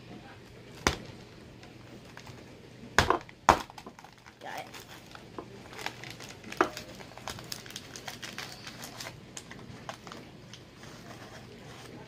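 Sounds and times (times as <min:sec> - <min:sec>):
cardboard box crinkling and tearing: 0:04.0 - 0:10.2.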